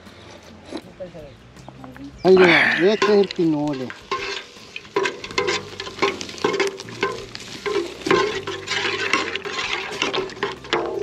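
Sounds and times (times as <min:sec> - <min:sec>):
steady hiss: 0:02.2 - 0:11.0
spatula scraping metal pot: 0:02.4 - 0:11.0.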